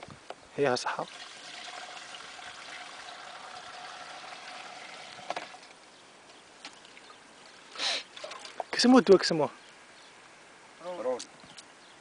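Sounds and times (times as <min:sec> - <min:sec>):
liquid pouring into plastic tank: 0:01.0 - 0:05.7.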